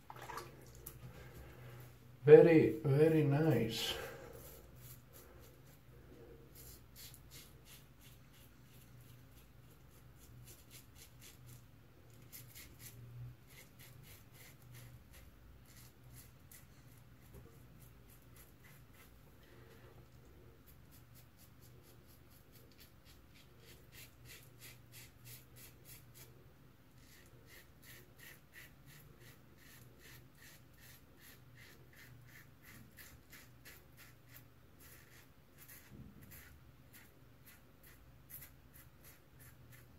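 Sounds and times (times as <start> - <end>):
razor scraping stubble: 27.0 - 39.9.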